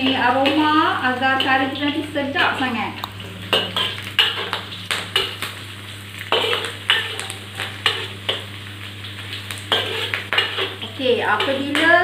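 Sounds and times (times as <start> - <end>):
aromatics sizzling in hot oil: 0.0 - 12.0
steel spatula scraping a wok: 9.7 - 10.9.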